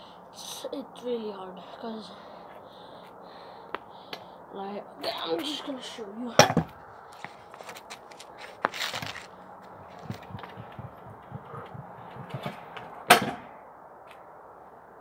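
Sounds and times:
scooter clacking on pavement: 0:06.3 - 0:13.3
scooter scraping: 0:07.0 - 0:13.3.

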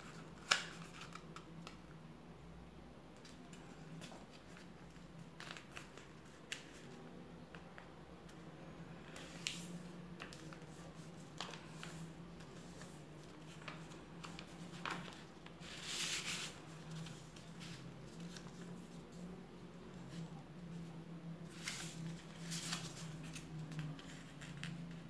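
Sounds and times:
paper rustling: 0:09.0 - 0:19.2, 0:21.4 - 0:25.0.

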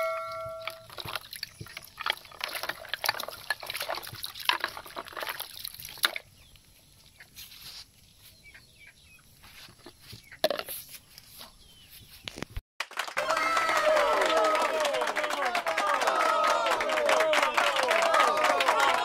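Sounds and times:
water sloshing with ice in bucket: 0:00.2 - 0:06.4.

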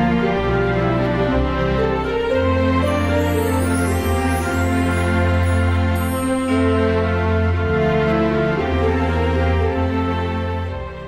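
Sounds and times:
instrumental background music: 0:00.0 - 0:11.0.

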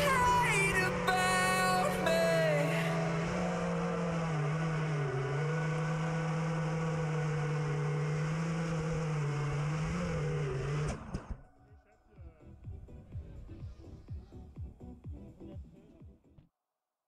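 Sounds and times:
quadcopter motors droning: 0:00.0 - 0:11.4.

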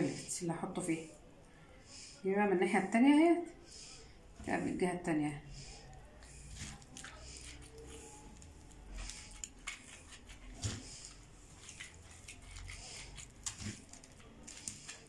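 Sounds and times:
wet squishing and rustling: 0:05.5 - 0:15.0.

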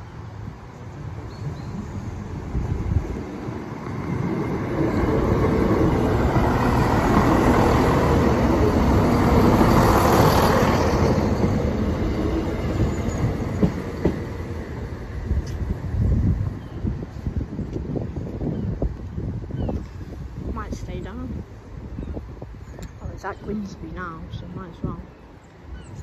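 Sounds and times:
train wheels rolling on rails: 0:00.0 - 0:19.1.

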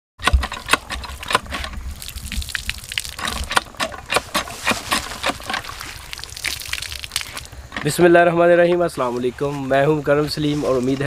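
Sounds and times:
water gushing from pump spout: 0:00.2 - 0:07.9
water splashing over hands: 0:01.9 - 0:07.5.

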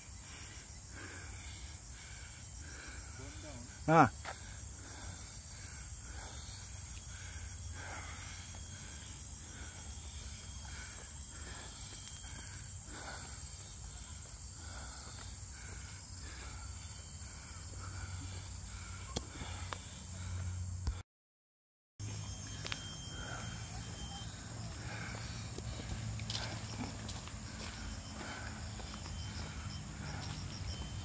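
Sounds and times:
high-pitched insect drone: 0:00.0 - 0:21.0, 0:22.0 - 0:31.0
faint footsteps on trail: 0:04.2 - 0:20.4, 0:22.5 - 0:31.0.

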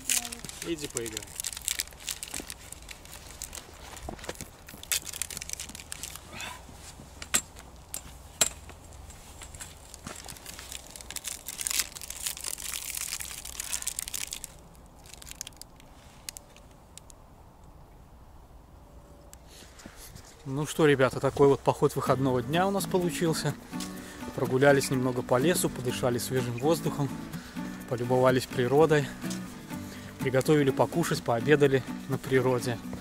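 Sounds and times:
wrapper sharp cracks: 0:00.0 - 0:06.2, 0:09.7 - 0:17.2
wrapper crinkling: 0:00.0 - 0:06.3, 0:09.2 - 0:17.1.

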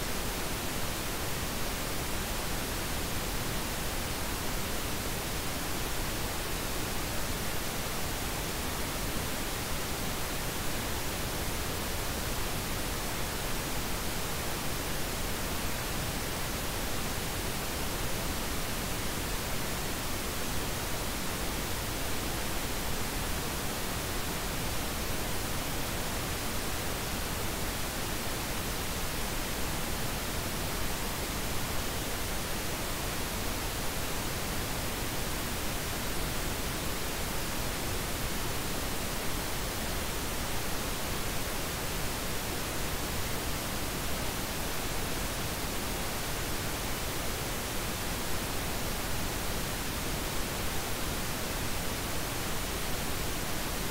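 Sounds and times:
steady pink noise hiss: 0:00.0 - 0:53.9.

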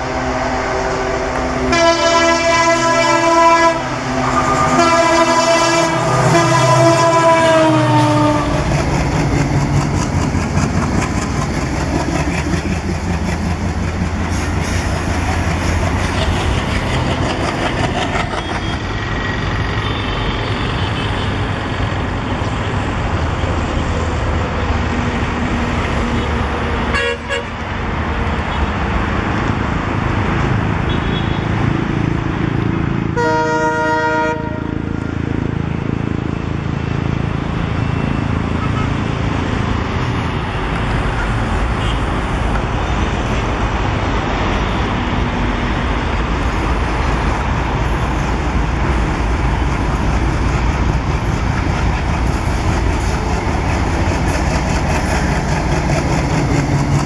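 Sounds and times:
locomotive horn blasts: 0:00.0 - 0:08.6, 0:26.9 - 0:27.5, 0:33.2 - 0:34.8
train rumbling past: 0:00.0 - 0:57.0.

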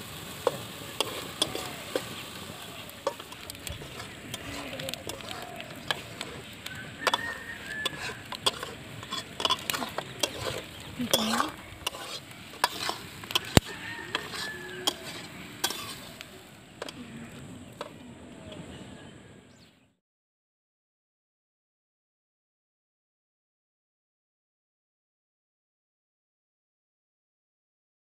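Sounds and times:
food sizzling in oil: 0:00.0 - 0:18.0
metal spatula scraping wok: 0:00.0 - 0:18.6.

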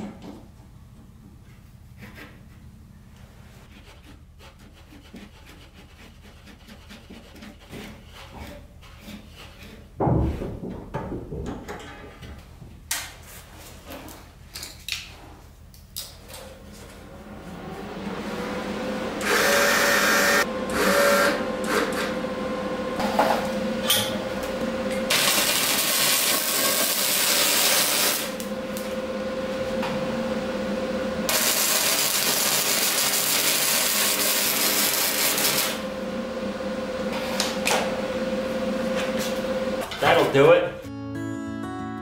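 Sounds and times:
welder hum: 0:16.9 - 0:39.9
welding arc crackling: 0:25.1 - 0:29.0, 0:31.3 - 0:35.8.

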